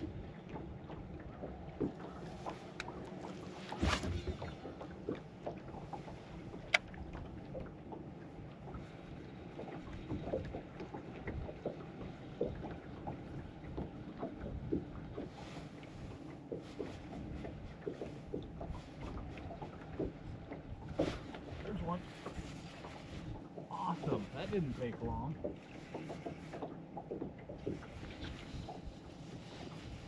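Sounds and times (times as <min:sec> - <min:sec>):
light wind: 0:00.0 - 0:30.0
waves lapping against boat hull: 0:00.0 - 0:30.0.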